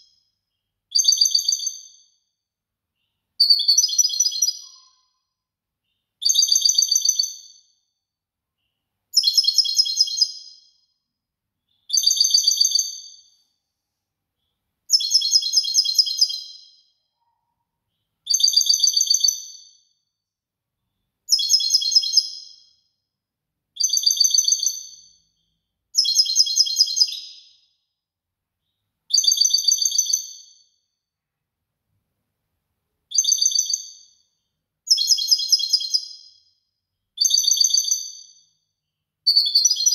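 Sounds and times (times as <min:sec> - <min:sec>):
songbird singing trilled phrases: 0:00.9 - 0:02.1, 0:03.4 - 0:05.3, 0:05.9 - 0:07.6, 0:09.1 - 0:10.8, 0:11.7 - 0:13.4, 0:14.9 - 0:16.9, 0:18.3 - 0:19.8, 0:21.3 - 0:22.8, 0:23.8 - 0:27.6, 0:29.1 - 0:30.6, 0:33.1 - 0:34.3, 0:34.9 - 0:36.4, 0:37.2 - 0:38.3, 0:39.3 - 0:39.9.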